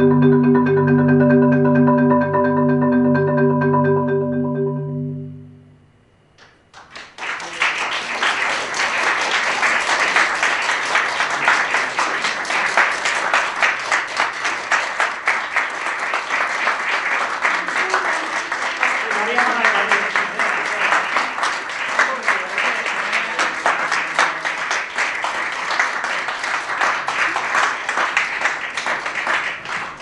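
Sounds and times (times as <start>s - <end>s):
marimba mallet roll: 0.0s - 5.7s
audience applause: 6.7s - 30.0s.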